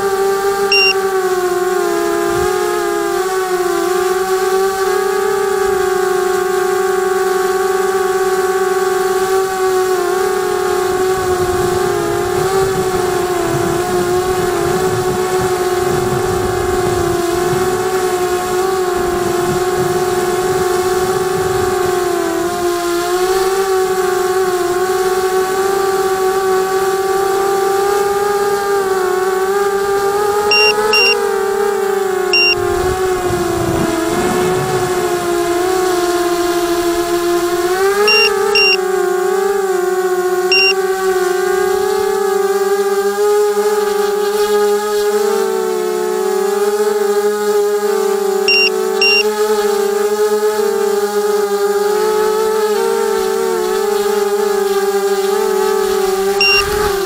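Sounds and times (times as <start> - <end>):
short high beeps: 0.7 - 1.0, 30.5 - 31.2, 32.4 - 32.6, 38.1 - 38.8, 40.5 - 40.8, 48.5 - 49.3, 56.4 - 56.9
low wind rumble: 10.9 - 22.6, 32.6 - 37.1
drone motors whining: 30.1 - 38.9, 40.5 - 40.8, 48.4 - 49.4, 55.4 - 57.0.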